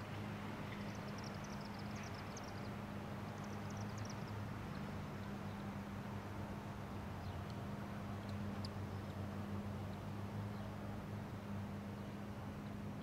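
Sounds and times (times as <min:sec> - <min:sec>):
songbird chirping: 0:00.7 - 0:05.7.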